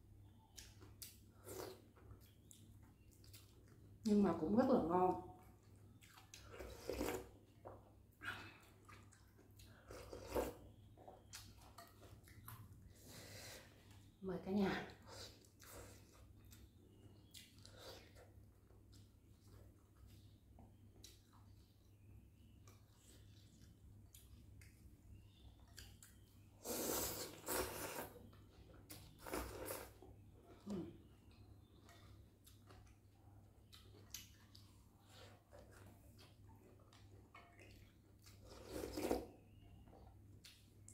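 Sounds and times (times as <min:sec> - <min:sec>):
chewing: 0:00.4 - 0:04.1, 0:05.3 - 0:13.2, 0:14.9 - 0:21.8, 0:22.4 - 0:40.9
slurping: 0:06.0 - 0:07.4, 0:26.6 - 0:28.4, 0:29.0 - 0:30.0, 0:37.7 - 0:39.5
person slurping noodles: 0:26.6 - 0:28.2.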